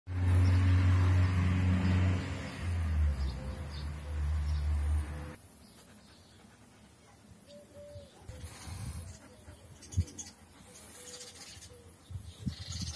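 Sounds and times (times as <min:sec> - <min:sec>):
engine humming: 0:00.1 - 0:05.4
faint bird chirps: 0:07.0 - 0:12.9.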